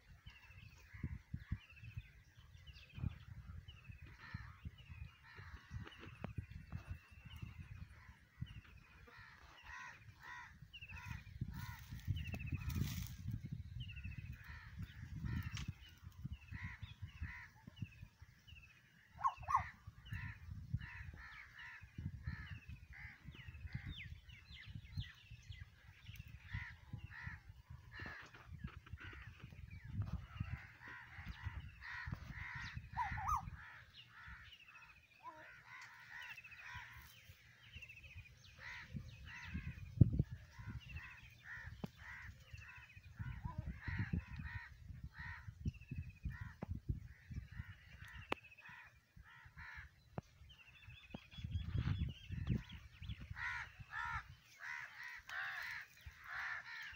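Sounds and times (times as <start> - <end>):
crows cawing: 9.0 - 12.1, 19.2 - 21.8, 30.5 - 37.2, 47.6 - 50.0, 53.3 - 56.9.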